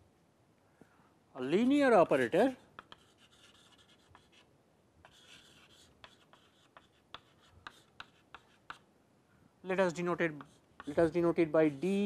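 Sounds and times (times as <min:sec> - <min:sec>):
chalk writing on a blackboard: 0:02.2 - 0:08.9, 0:09.9 - 0:12.0.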